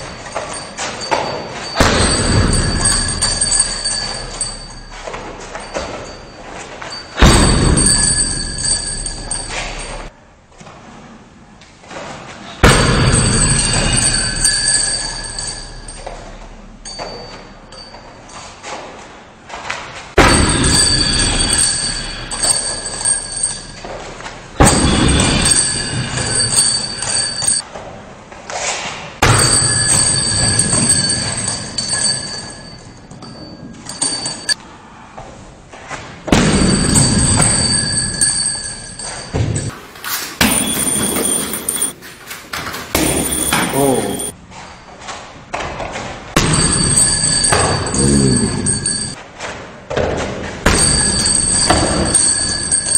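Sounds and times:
hanging chains squealing: 0.0 - 10.1, 13.1 - 18.6, 20.2 - 27.6, 29.3 - 34.6, 36.7 - 45.0, 46.5 - 49.2, 50.7 - 52.9
kicks thudding on punching bag: 1.7 - 3.2, 7.2 - 8.4, 12.6 - 13.5, 20.2 - 21.6, 24.6 - 25.5, 36.3 - 37.8
kick thudding on punching bag: 7.2 - 8.1.

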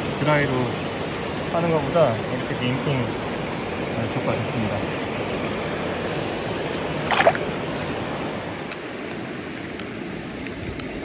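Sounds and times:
stream water running: 0.0 - 11.0
water splash: 6.8 - 8.0.

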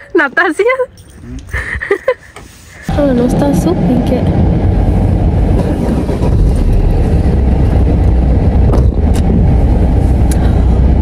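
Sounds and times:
car engine rumble: 1.0 - 11.0
road noise inside car: 2.5 - 11.0.

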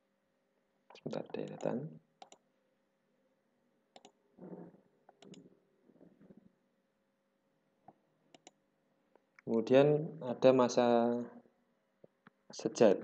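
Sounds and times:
computer mouse clicks: 0.9 - 2.4, 3.9 - 5.5, 7.9 - 8.6.

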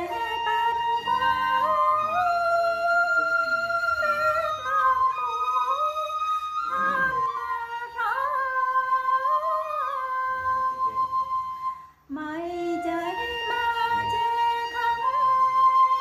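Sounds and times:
backing music: 0.0 - 7.9
woman singing folk song: 12.1 - 15.4.

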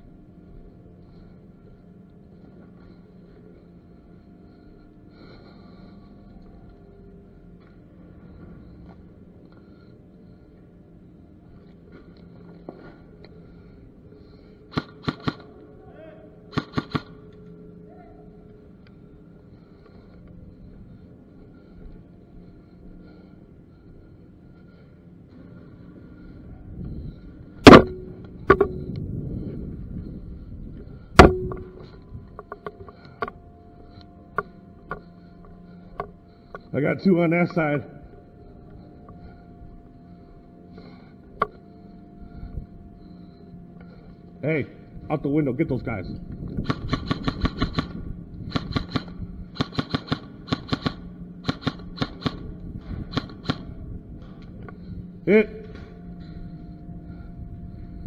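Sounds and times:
airsoft gun shots: 14.7 - 15.4, 16.5 - 17.2, 27.6 - 28.0, 46.6 - 52.4, 53.1 - 53.6.

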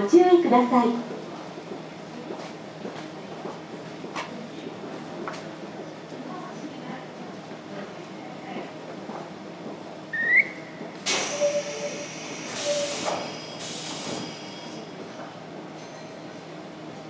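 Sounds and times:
short rising whistle: 10.1 - 13.0
compressed air hissing from train: 11.0 - 15.0.

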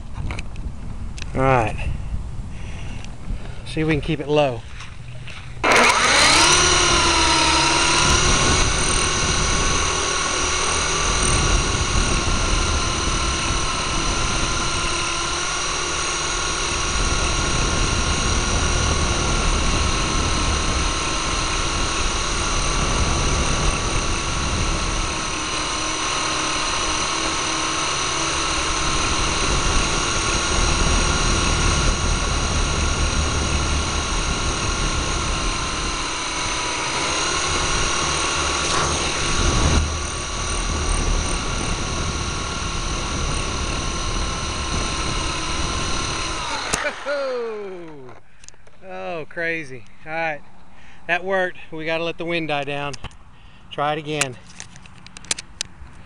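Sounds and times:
low rumble of air: 0.0 - 46.6
toy helicopter rotors whining: 5.6 - 49.2.

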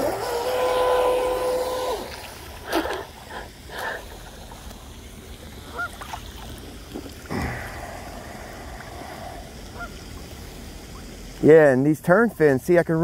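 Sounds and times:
faint hiss: 0.0 - 13.0
geese honking: 5.7 - 6.0.

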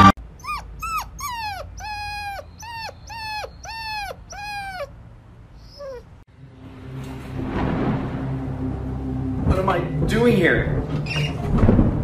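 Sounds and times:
puppy howling cries: 0.4 - 5.0, 5.6 - 6.1.

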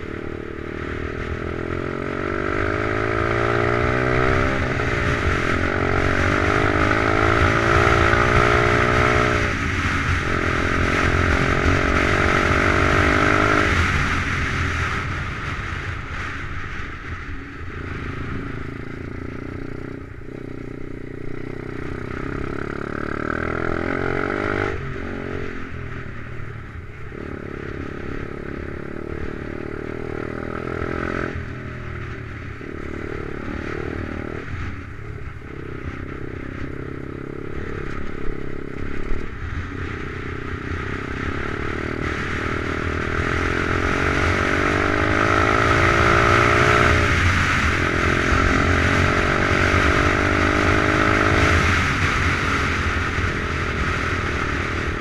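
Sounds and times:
pit bike engine revving: 0.0 - 16.3, 32.6 - 55.0.

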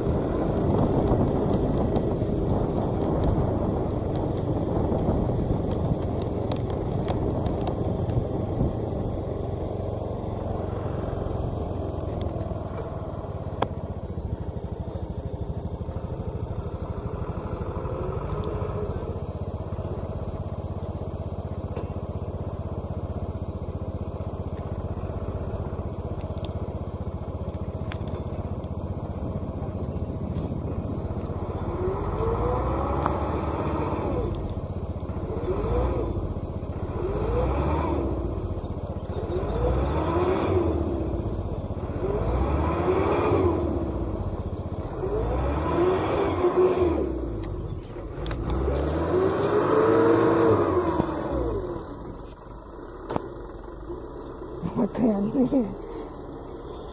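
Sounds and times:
diesel truck engine revving: 29.0 - 56.9.

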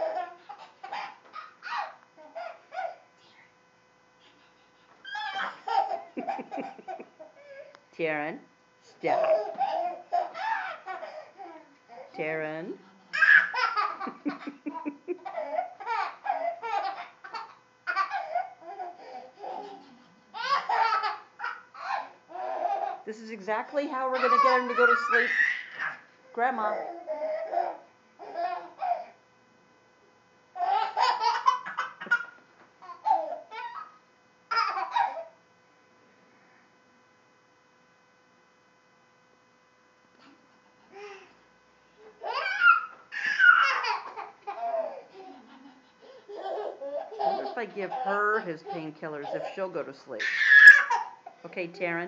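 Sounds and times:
toddler laughing: 0.0 - 3.0, 5.0 - 7.7, 9.1 - 12.1, 13.1 - 23.0, 24.1 - 26.0, 26.8 - 29.2, 30.6 - 35.4, 42.1 - 49.6, 50.2 - 51.4.

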